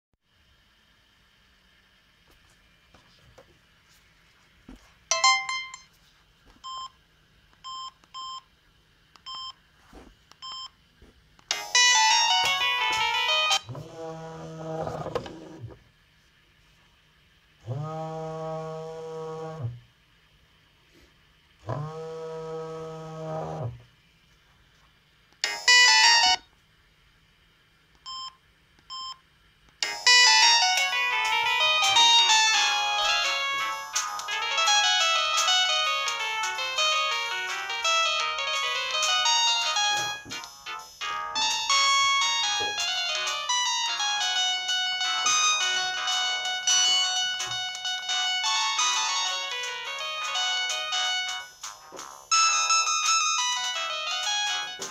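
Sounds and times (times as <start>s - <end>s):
polyphonic phone ringtone: 5.1s - 5.9s, 11.5s - 13.7s, 25.4s - 26.4s, 29.8s - 54.9s
keypad beeps: 9.2s - 9.6s, 10.4s - 10.7s, 28.0s - 29.2s.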